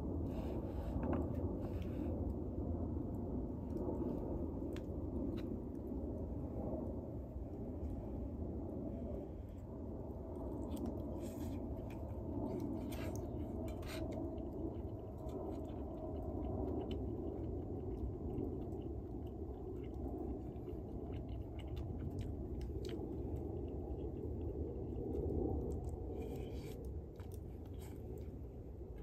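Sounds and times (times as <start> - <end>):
chewing: 9.6 - 29.0.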